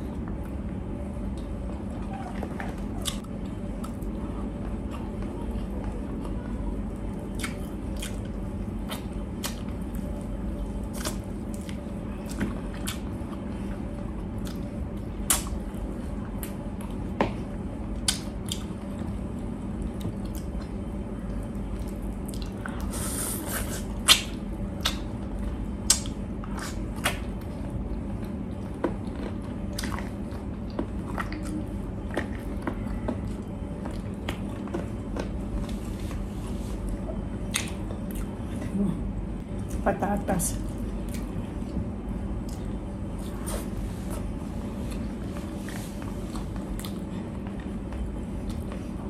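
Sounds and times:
steady low hum: 0.0s - 49.0s
wet chewing and lip smacks: 7.0s - 10.1s, 10.8s - 13.4s, 14.4s - 15.6s, 18.0s - 19.0s, 21.7s - 22.9s, 23.5s - 35.7s, 36.9s - 38.6s, 45.7s - 48.8s.

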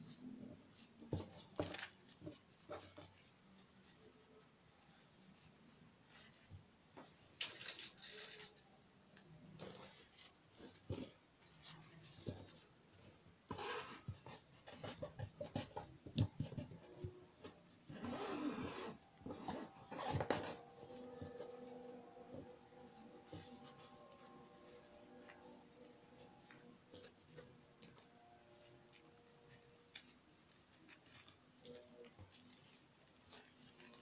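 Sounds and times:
fabric rustling: 9.6s - 34.0s.

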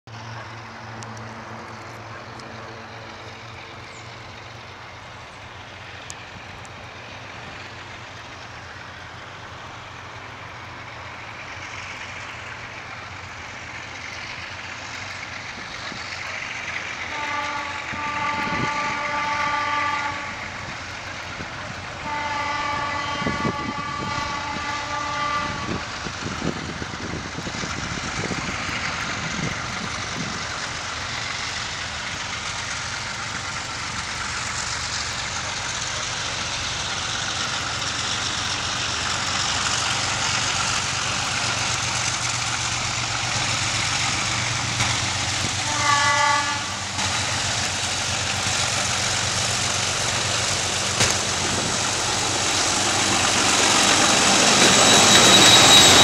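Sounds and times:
diesel locomotive engine running: 0.1s - 56.0s
locomotive horn blasts: 17.1s - 20.4s, 22.0s - 25.8s, 45.6s - 46.8s.

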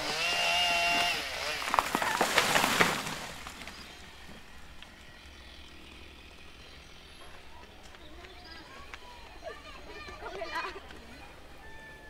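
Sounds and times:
tree trunk cracking and crashing: 0.0s - 4.1s
faint outdoor background: 3.3s - 12.0s.

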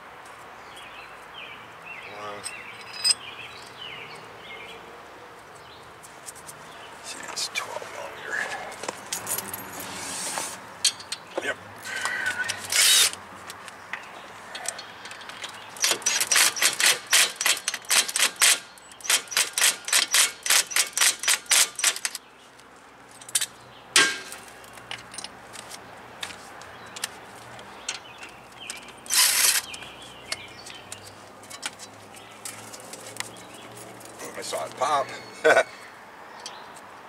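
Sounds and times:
sharp metallic clicks: 13.9s - 22.2s, 27.8s - 32.6s.

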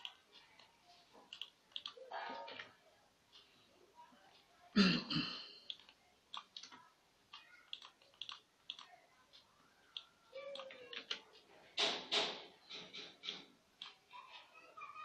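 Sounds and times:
computer mouse clicking: 0.0s - 2.7s, 5.6s - 9.0s, 9.8s - 14.0s.

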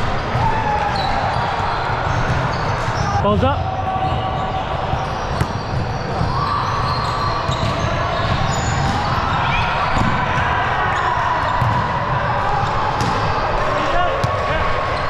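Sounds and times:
volleyballs bouncing and struck: 1.9s - 10.6s, 11.3s - 14.7s.

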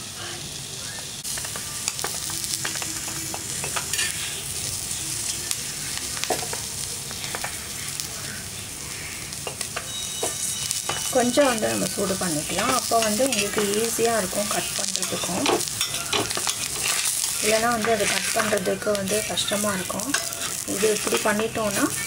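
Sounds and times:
meat sizzling on a hot pan: 0.0s - 22.0s
metal spatula scraping a pan: 2.7s - 4.5s, 14.4s - 22.0s.

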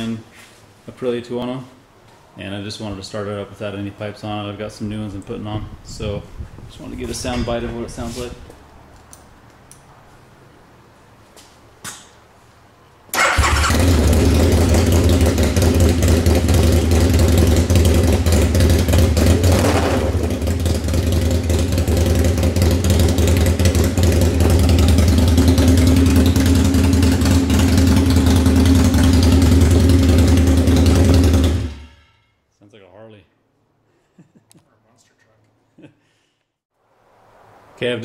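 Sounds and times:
motorcycle engine starting and idling: 13.1s - 31.9s.

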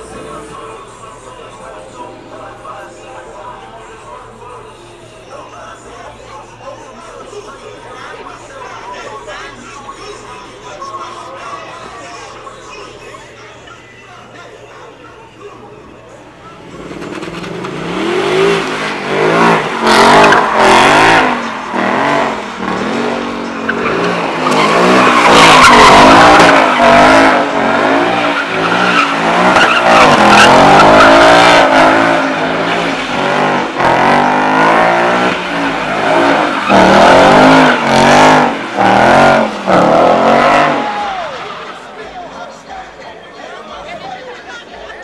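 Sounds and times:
tires squealing: 16.4s - 42.6s
car engine revving: 16.5s - 42.4s.

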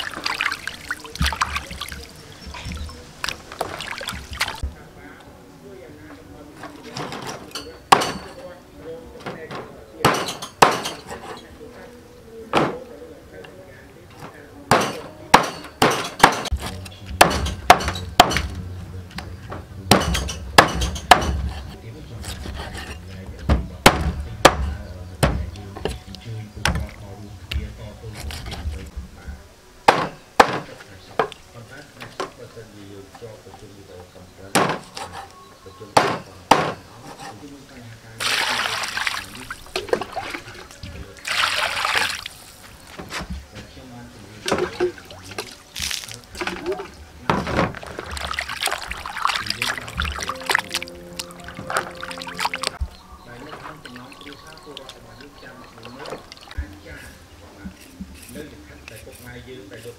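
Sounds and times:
water poured into basin splashing: 0.0s - 2.4s, 3.2s - 4.6s, 38.2s - 42.6s, 47.8s - 52.8s
cleaver chopping on wooden board: 10.0s - 11.0s, 14.7s - 18.5s, 19.9s - 21.6s, 23.5s - 26.0s, 29.9s - 30.6s, 34.6s - 35.2s, 36.0s - 36.8s.

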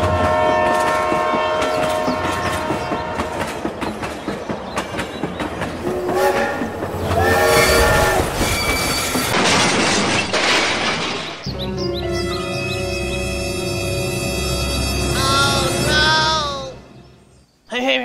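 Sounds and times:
train horn blast: 0.0s - 3.6s, 5.8s - 8.3s
rolling train clatter: 0.0s - 11.5s.

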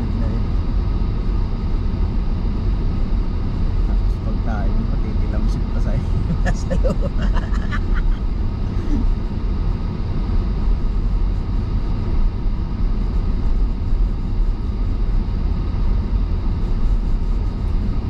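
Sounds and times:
car cabin road rumble: 0.0s - 18.0s.

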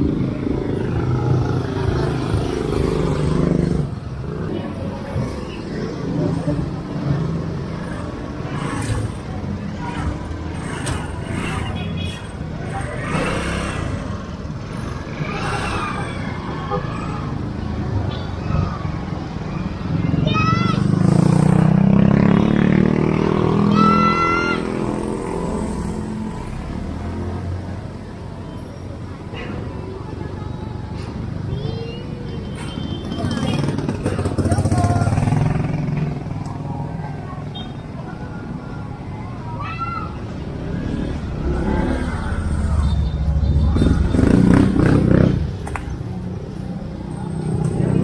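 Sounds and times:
motorcycle passing by: 0.0s - 11.8s, 12.7s - 16.1s, 19.9s - 27.7s, 33.1s - 37.4s, 40.3s - 45.6s.

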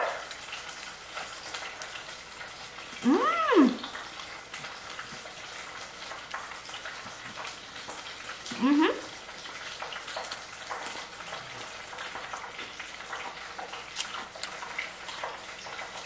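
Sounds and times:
drawn-out voice-like call: 3.0s - 3.8s.

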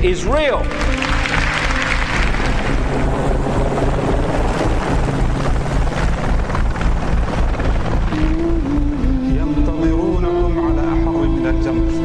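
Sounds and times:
helicopter rotors and engines: 0.7s - 9.5s.

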